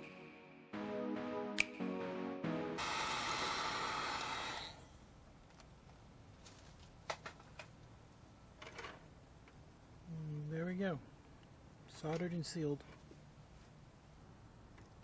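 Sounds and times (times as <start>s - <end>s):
heat gun hissing: 2.8s - 4.8s.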